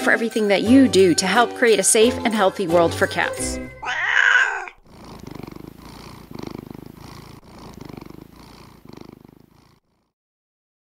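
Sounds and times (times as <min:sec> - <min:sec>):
cat purring: 0:03.0 - 0:10.2
cat meowing: 0:03.8 - 0:04.9.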